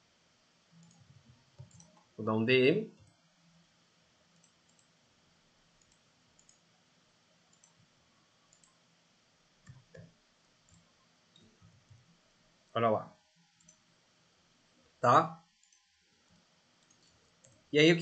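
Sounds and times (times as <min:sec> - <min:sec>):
computer mouse clicks: 0:00.7 - 0:02.1, 0:04.3 - 0:05.0, 0:05.8 - 0:06.7, 0:07.5 - 0:07.9, 0:08.5 - 0:08.8, 0:09.6 - 0:12.1, 0:13.6 - 0:13.9, 0:15.5 - 0:16.0, 0:16.8 - 0:17.7.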